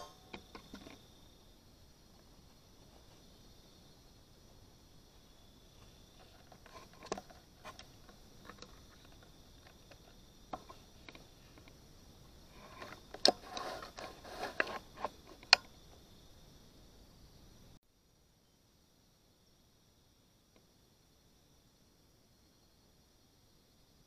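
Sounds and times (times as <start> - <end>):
high-pitched insect chorus: 0.0 - 24.0
rustling: 5.6 - 11.8, 12.4 - 16.0.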